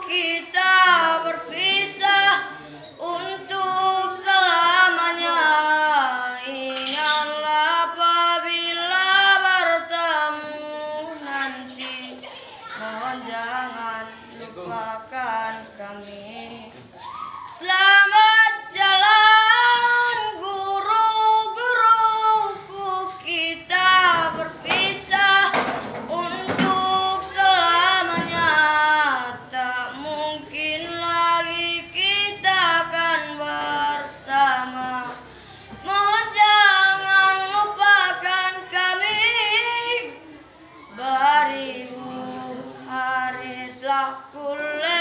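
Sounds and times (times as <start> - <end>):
boy singing solo: 0.0 - 45.0.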